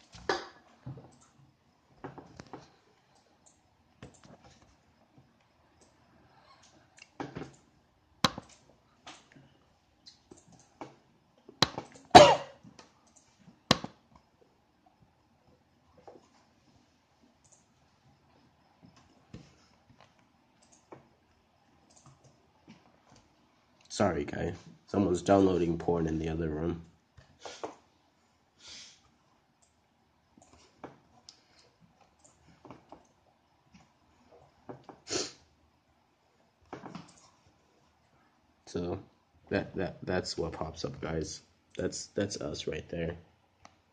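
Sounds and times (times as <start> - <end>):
computer mouse clicks: 2.3 - 4.7, 5.8 - 6.0, 10.1 - 11.0, 12.8 - 14.0, 17.4 - 17.7, 19.9 - 21.1, 21.8 - 22.4, 31.2 - 33.1.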